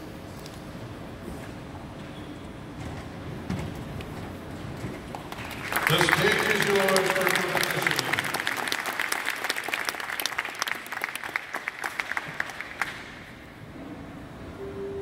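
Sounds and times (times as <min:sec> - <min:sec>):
audience applause: 0:05.1 - 0:13.2.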